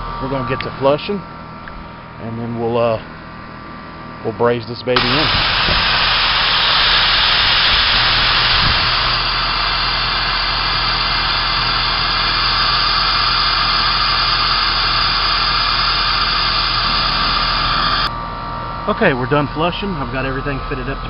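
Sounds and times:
gas hissing from pipe: 5.0 - 18.1.

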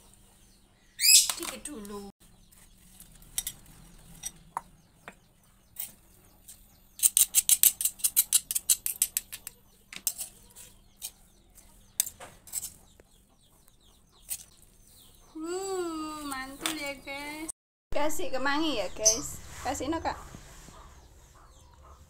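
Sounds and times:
spoon and containers clicking: 7.0 - 11.2.

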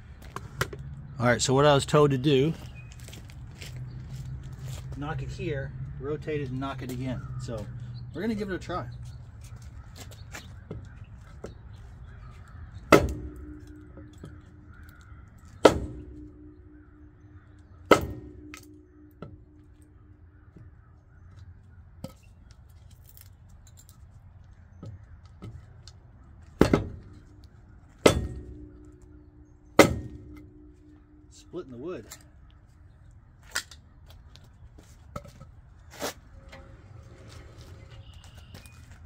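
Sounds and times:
wood striking metal wheel: 12.9 - 19.8, 26.6 - 31.4, 36.4 - 38.6.

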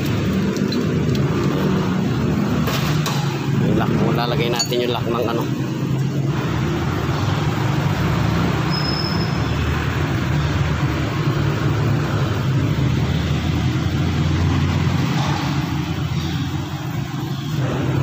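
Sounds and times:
motor vehicle rumble: 0.0 - 18.0.

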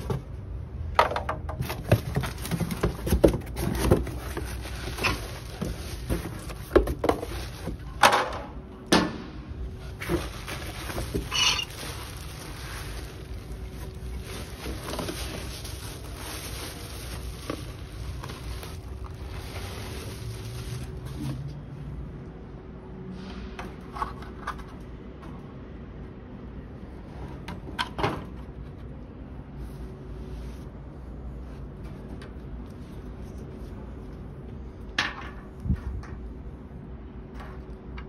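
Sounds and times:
bubble wrap rustling: 1.6 - 8.0, 9.7 - 21.8.

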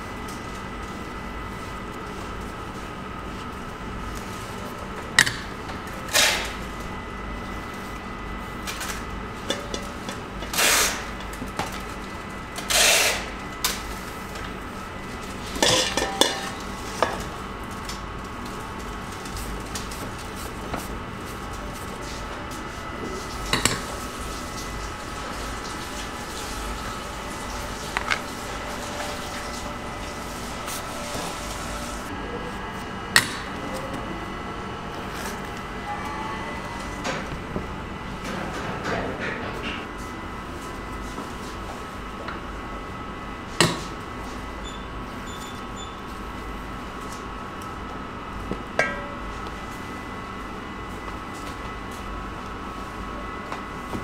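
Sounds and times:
bakery equipment hum: 0.0 - 54.0
utensils clattering on metal counter: 8.7 - 11.9, 15.4 - 18.0.

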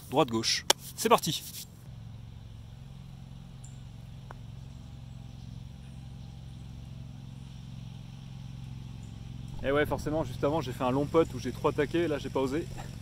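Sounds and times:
low engine drone: 0.0 - 13.0
putter striking golf ball: 3.6 - 4.9.

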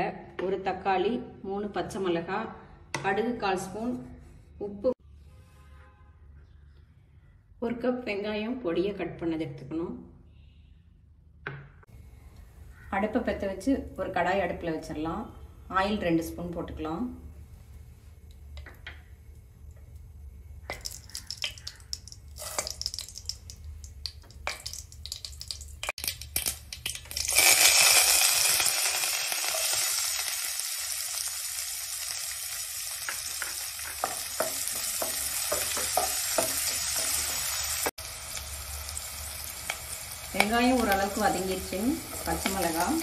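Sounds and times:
onions sizzling in hot oil: 20.7 - 43.0
spoon knocking while stirring: 33.1 - 37.4.

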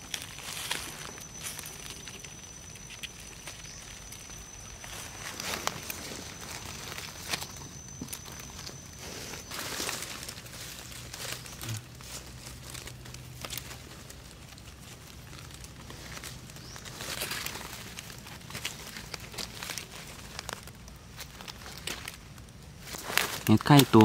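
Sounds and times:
dry leaves crackling and rustling: 0.0 - 24.0.

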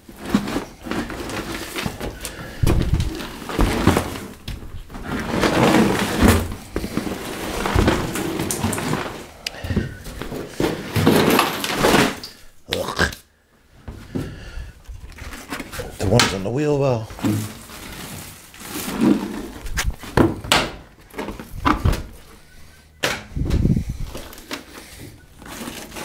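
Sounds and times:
wet carpet scraping and rustling: 0.1 - 9.4, 17.2 - 20.2.

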